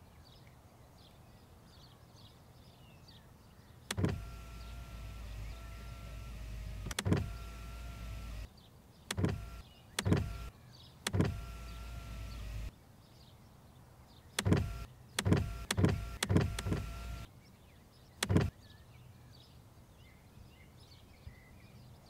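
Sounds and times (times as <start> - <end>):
steady low hum: 3.9 - 8.5, 9.1 - 10.5, 11.1 - 12.7, 14.4 - 17.3
sharp knocks: 18.2 - 18.5.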